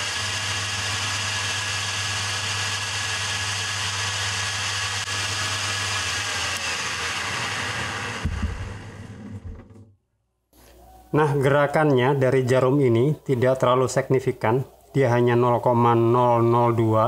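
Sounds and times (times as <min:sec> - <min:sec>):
electric motor hum and whir: 0:00.0 - 0:09.8.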